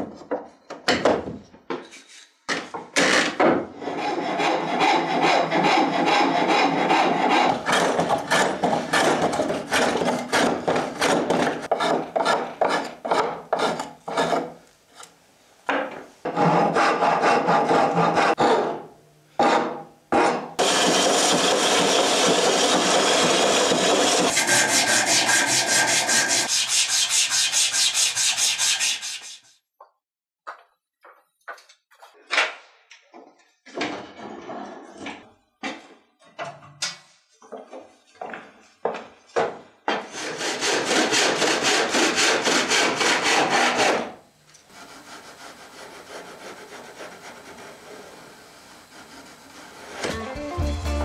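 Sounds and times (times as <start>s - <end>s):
file scraping wood: 3.8s - 15.1s, 16.2s - 18.8s, 19.4s - 29.5s, 39.9s - 44.1s, 44.7s - 50.1s.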